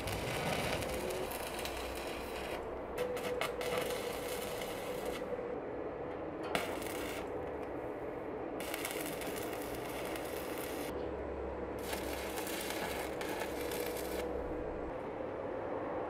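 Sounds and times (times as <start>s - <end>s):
welding arc crackling and sizzling: 0.0s - 5.3s, 6.4s - 7.8s, 8.6s - 10.9s, 11.8s - 14.6s.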